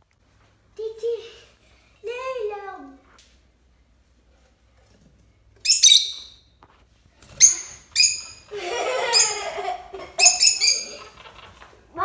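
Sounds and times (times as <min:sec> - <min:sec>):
parrot chirping: 0:05.6 - 0:06.5, 0:07.4 - 0:11.2.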